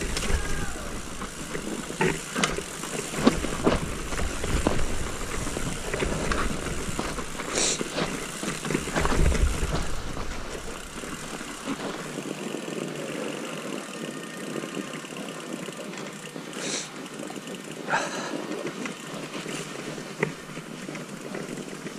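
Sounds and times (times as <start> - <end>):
tyre and air rushing: 0.0 - 12.1
bike knocks and rattles: 0.0 - 13.6, 18.6 - 21.9.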